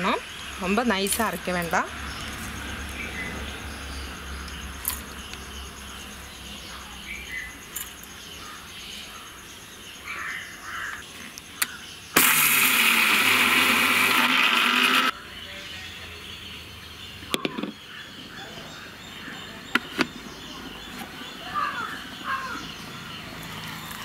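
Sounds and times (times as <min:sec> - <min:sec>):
mixer grinder running: 0:12.2 - 0:15.1.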